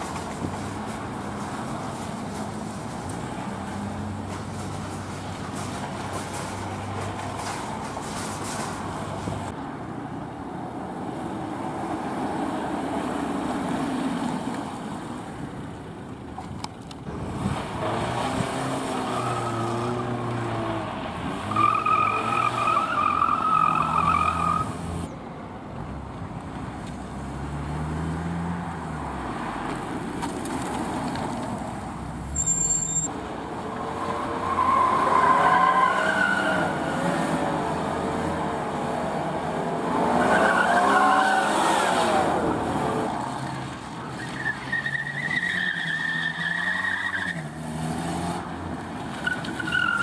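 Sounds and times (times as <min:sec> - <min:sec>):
car engines revving: 0:00.0 - 0:50.0
tyres squealing: 0:21.5 - 0:24.8, 0:32.3 - 0:33.1, 0:49.2 - 0:50.0.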